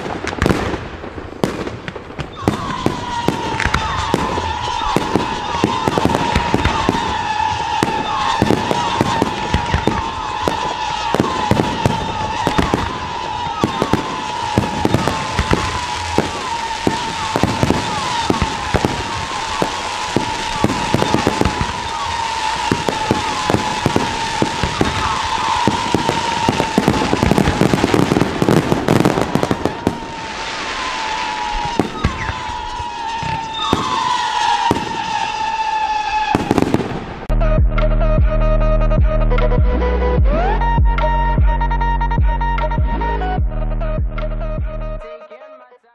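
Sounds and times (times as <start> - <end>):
fireworks bangs and crackles: 0.0 - 37.4
fireworks whistle: 2.2 - 37.4.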